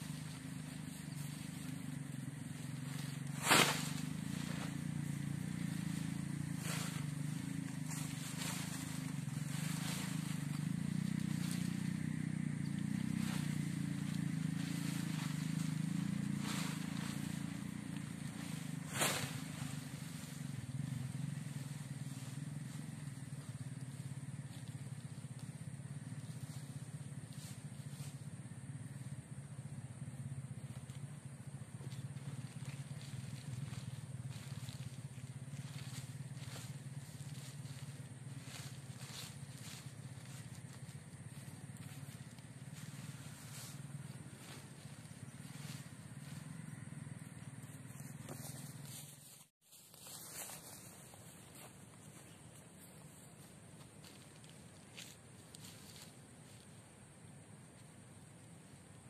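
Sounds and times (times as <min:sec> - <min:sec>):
low hum: 0:00.0 - 0:49.3
tarp snapping: 0:03.3 - 0:04.7.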